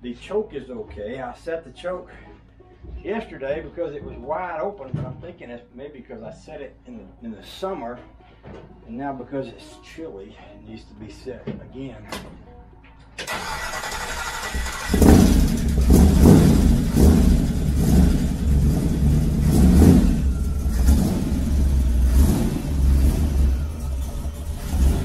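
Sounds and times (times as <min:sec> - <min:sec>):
starter motor cranking with whine: 0:13.2 - 0:25.0
car engine revving unevenly: 0:13.8 - 0:25.0.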